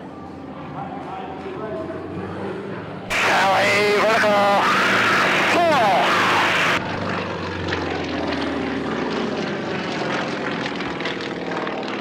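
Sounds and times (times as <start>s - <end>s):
propeller planes droning overhead: 0.0s - 12.0s.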